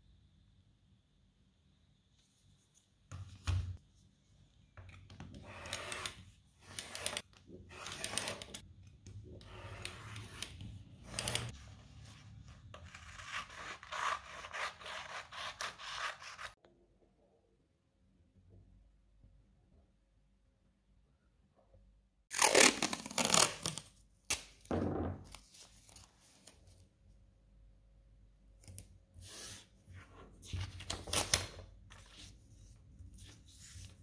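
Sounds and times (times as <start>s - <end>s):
rotary cutter scraping through paper: 5.4s - 8.6s.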